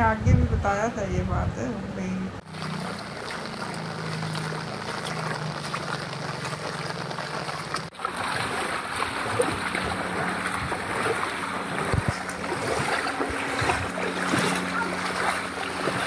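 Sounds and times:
rain: 2.4s - 7.9s
splashing floodwater: 2.4s - 16.0s.

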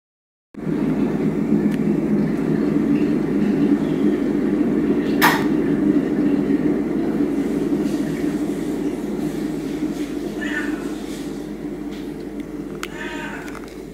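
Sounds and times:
low machine hum: 0.6s - 13.9s
sharp clack: 5.2s - 5.5s.

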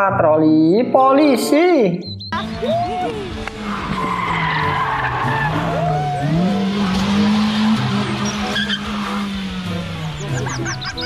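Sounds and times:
engine at high revs: 2.4s - 11.0s
tyre squealing: 2.5s - 9.4s.

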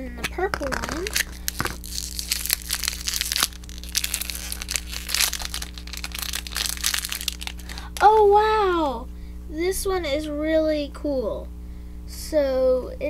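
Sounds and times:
steady low hum: 0.0s - 13.0s
packaging crinkling: 0.5s - 8.3s.

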